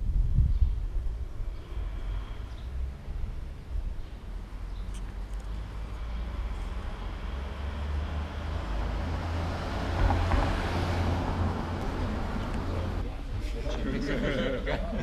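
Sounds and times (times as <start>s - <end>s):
vehicle passing by: 5.5s - 13.1s.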